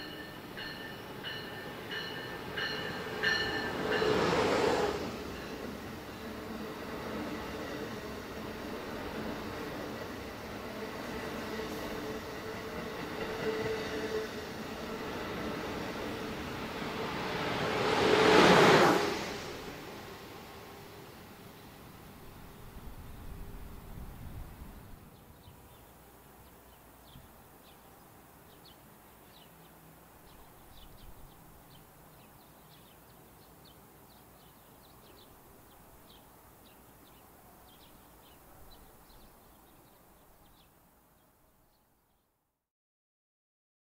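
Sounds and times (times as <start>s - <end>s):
faint outdoor background noise: 0.0s - 42.6s
small birds chirping: 25.1s - 42.3s.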